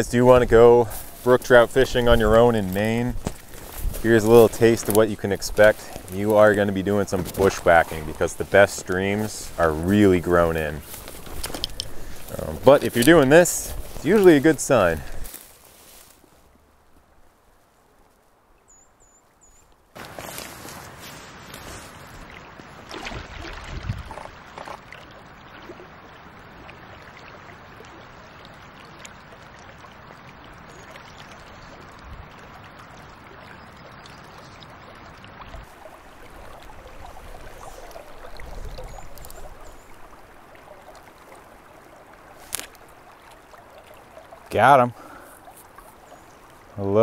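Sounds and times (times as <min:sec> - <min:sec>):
shallow stream flowing over riffles: 0:00.0 - 0:47.0
water sloshing around legs: 0:00.8 - 0:16.5, 0:20.0 - 0:25.8, 0:35.2 - 0:46.8.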